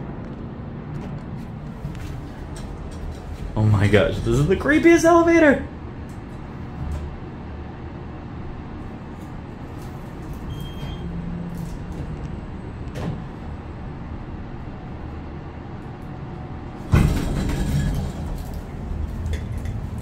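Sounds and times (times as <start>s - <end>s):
elevator low rumble: 0.0s - 20.0s
loud rattling clatter: 16.8s - 20.0s.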